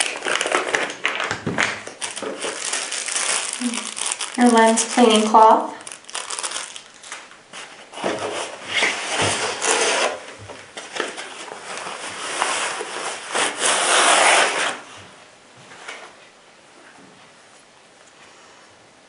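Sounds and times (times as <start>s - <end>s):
protective wrap rubbing and rustling: 0.0s - 15.0s.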